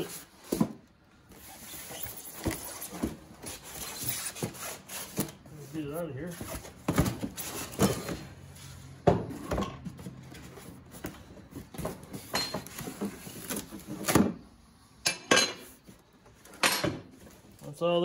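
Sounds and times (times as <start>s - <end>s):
cardboard scraping and rustling: 0.0s - 14.4s.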